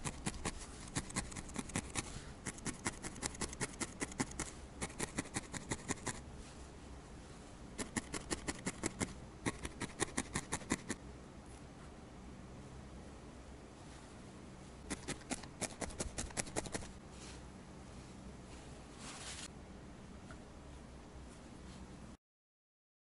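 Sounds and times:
felting needle poking wool: 0.0s - 6.2s, 7.8s - 11.0s, 14.8s - 16.9s.

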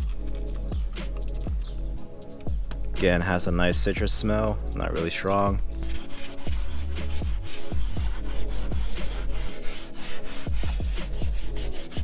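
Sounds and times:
electronic music: 0.0s - 12.0s
brush scrubbing leather: 5.8s - 12.0s.

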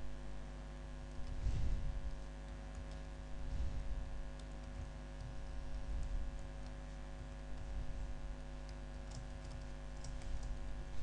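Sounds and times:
low electrical hum: 0.0s - 11.0s
computer keyboard keystrokes: 2.1s - 3.2s, 4.3s - 7.8s, 8.6s - 10.6s.

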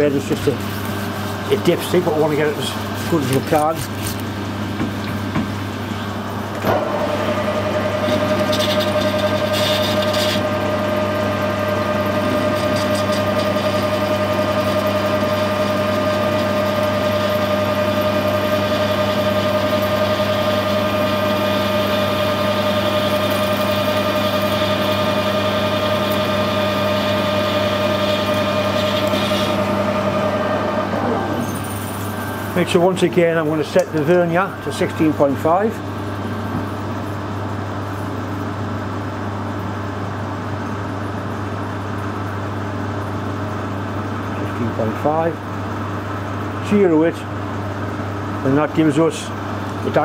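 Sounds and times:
metal lathe whining: 6.0s - 36.4s.

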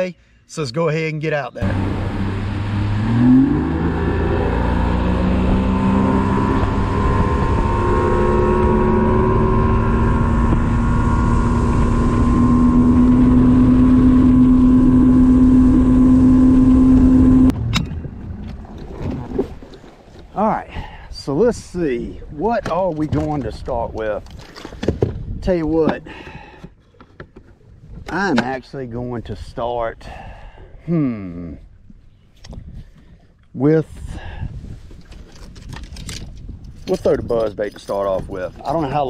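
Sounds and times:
outboard motor accelerating: 1.6s - 20.5s
rush of wind and water: 1.6s - 26.2s, 32.4s - 39.0s.

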